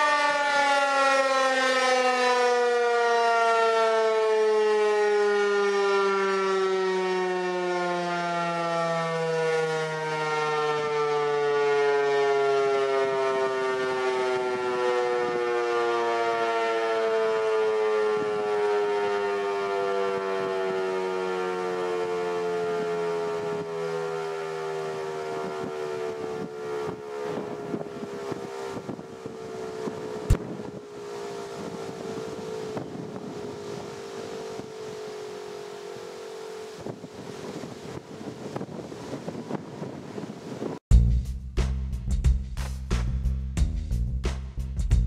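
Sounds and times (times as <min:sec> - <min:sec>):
warning siren winding down: 0:00.0 - 0:40.8
wind on microphone: 0:25.4 - 0:35.0, 0:36.7 - 0:40.8.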